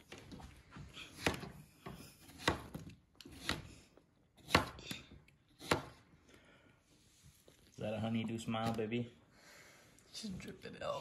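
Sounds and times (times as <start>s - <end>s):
knife chopping on cutting board: 1.0s - 3.8s, 4.4s - 6.0s.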